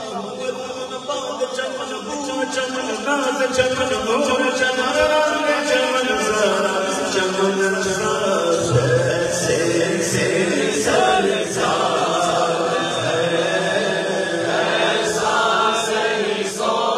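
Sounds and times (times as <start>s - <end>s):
man singing into a microphone: 0.0s - 14.5s
men chanting a refrain: 5.6s - 16.9s.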